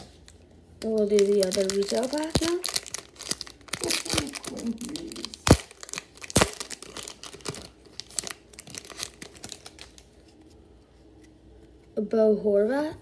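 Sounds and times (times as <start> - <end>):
foil wrapper crinkling and tearing: 0.8 - 10.2.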